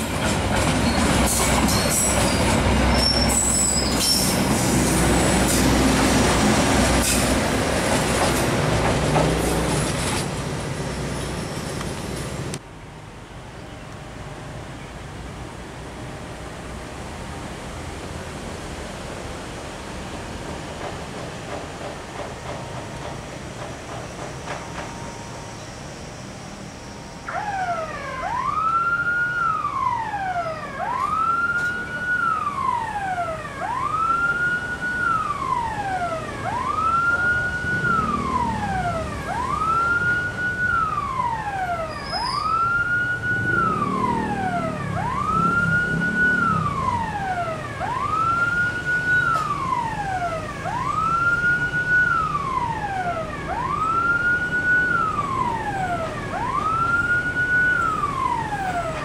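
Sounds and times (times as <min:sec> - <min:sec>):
diesel locomotive rumble: 0:00.0 - 0:12.7
level crossing warning siren wailing: 0:27.3 - 0:59.0.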